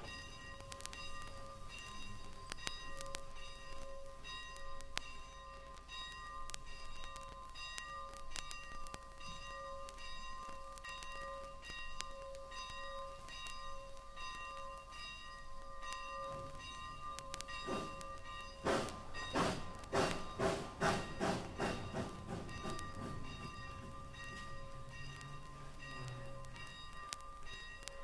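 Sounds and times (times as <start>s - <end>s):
locomotive bell ringing: 0.0s - 28.0s.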